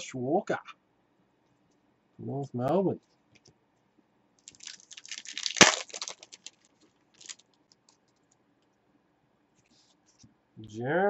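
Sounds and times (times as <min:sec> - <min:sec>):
cards clicking and rustling: 0:04.4 - 0:06.6, 0:07.2 - 0:07.4.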